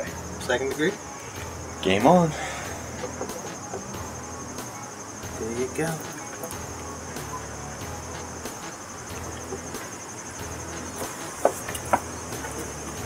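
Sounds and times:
insects trilling: 0:00.0 - 0:13.0.

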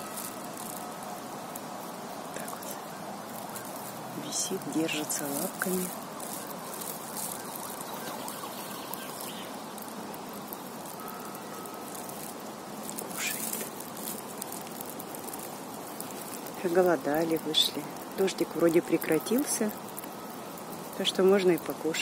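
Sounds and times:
distant traffic hum: 0:00.0 - 0:22.0.

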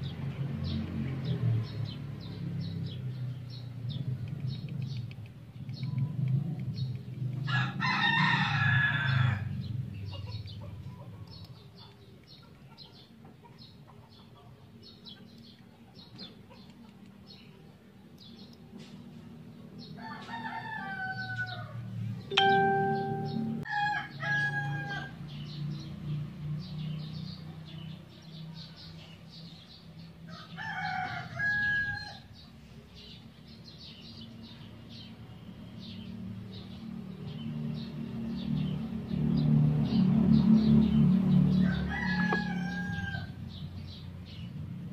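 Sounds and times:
rooster crowing: 0:07.5 - 0:09.6, 0:20.0 - 0:21.8, 0:23.7 - 0:25.2, 0:30.3 - 0:32.3, 0:41.5 - 0:43.4.

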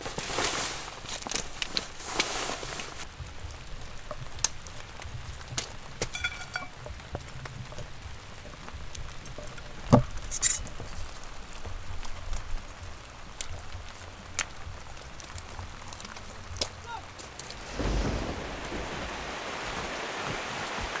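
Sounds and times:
metal poles clicking and tapping: 0:05.5 - 0:08.6
metallic ring: 0:06.1 - 0:06.7.

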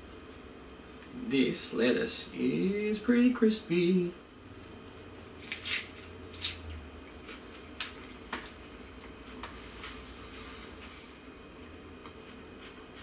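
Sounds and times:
lettuce crunching when chewed: 0:05.4 - 0:08.2.

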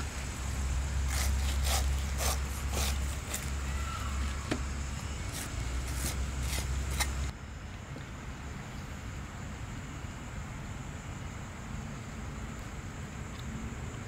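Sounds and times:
steady low hum: 0:00.0 - 0:14.0
cleaver slicing pineapple: 0:00.2 - 0:07.3.

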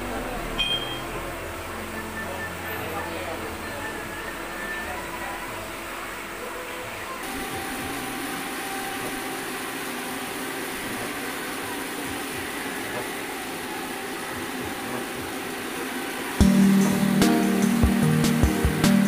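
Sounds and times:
loud music: 0:00.0 - 0:06.0, 0:16.4 - 0:19.0
metal lathe running: 0:00.0 - 0:19.0.

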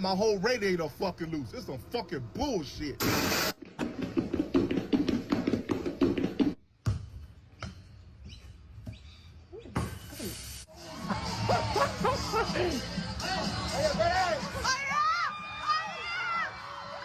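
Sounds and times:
rapid tapping and knocking: 0:03.8 - 0:06.6.

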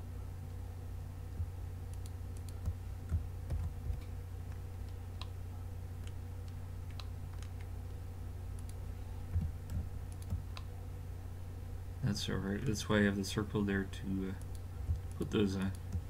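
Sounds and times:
steady low hum: 0:00.0 - 0:16.0
computer keyboard clicks: 0:09.4 - 0:10.7.

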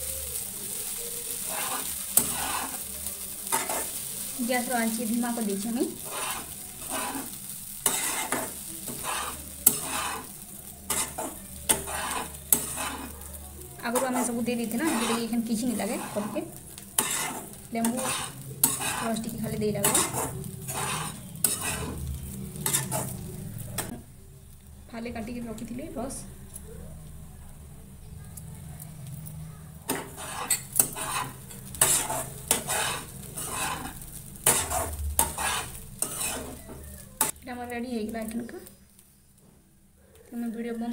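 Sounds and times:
spatula scraping a frying pan: 0:00.0 - 0:24.0, 0:29.8 - 0:37.4.

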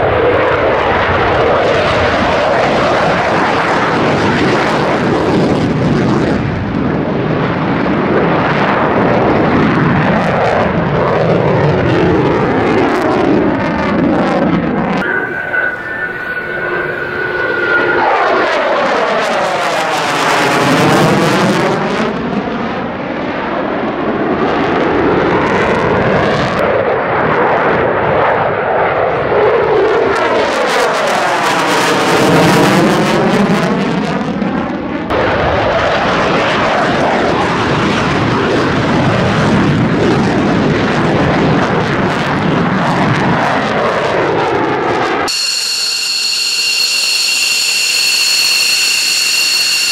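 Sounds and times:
jet engines roaring: 0:00.0 - 0:49.9.

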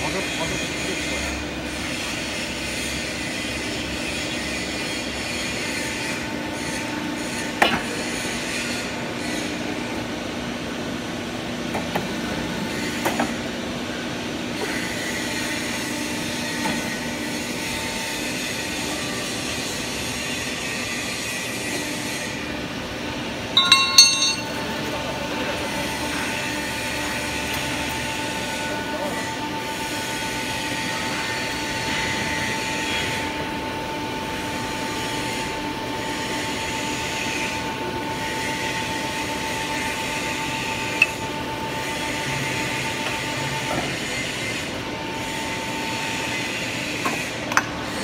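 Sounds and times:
metal clatter: 0:23.6 - 0:24.5
sharp metal knock: 0:23.6 - 0:24.6.

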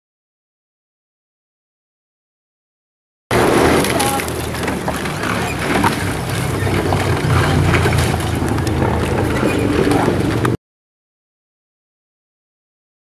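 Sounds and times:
boat and water noise: 0:03.3 - 0:10.6
wind rumble on microphone: 0:03.3 - 0:10.6.

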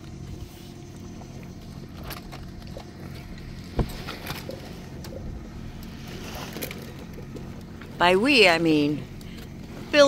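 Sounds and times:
wind and water rushing along hull: 0:00.0 - 0:10.0.

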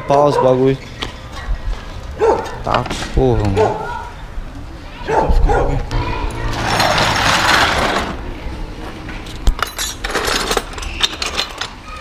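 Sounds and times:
metal tools clinking: 0:09.2 - 0:11.8.

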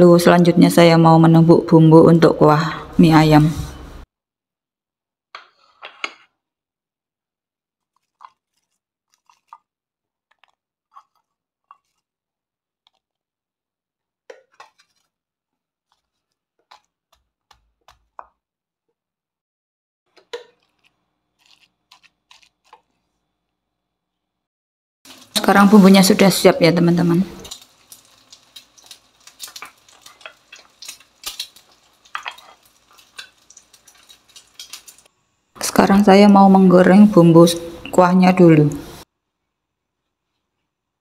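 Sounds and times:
pestle crushing in stone mortar: 0:15.9 - 0:18.4.

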